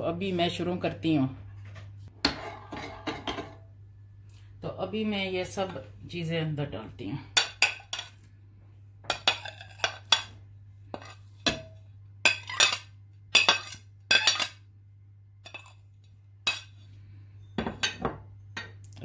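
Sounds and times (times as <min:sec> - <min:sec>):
metal spoon clinking on dishes: 0:11.0 - 0:14.6.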